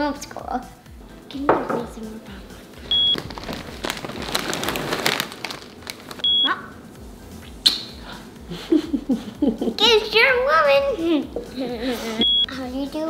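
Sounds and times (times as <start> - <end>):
high electronic beep: 2.9 - 3.2.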